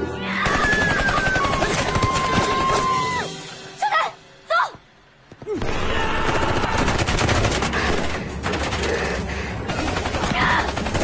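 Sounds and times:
rapid gunfire: 0.4 - 2.8, 5.7 - 11.0.

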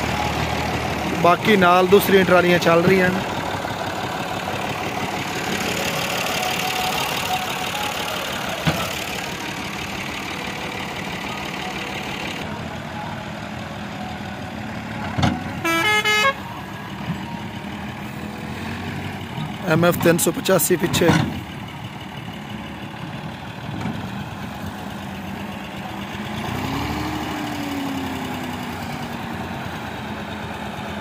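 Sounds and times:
tractor diesel engine running: 0.0 - 31.0
vehicle horn honk: 15.6 - 16.5.

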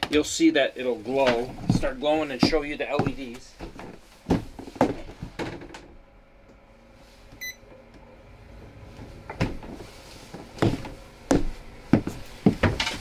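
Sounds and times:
short electronic beep: 7.4 - 7.6.

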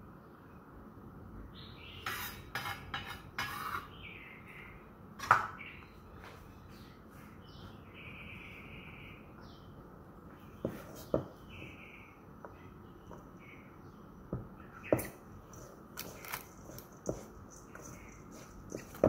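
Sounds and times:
birds chirping: 3.8 - 19.0.

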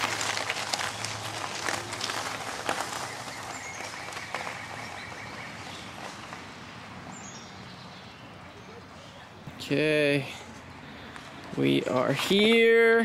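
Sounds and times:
bike tyres crunching on gravel: 0.0 - 7.6, 10.9 - 13.0.

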